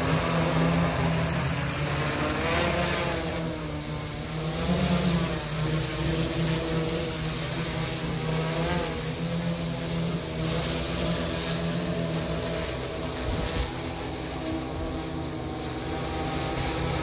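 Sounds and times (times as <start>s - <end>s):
drone propellers humming: 0.0s - 17.0s.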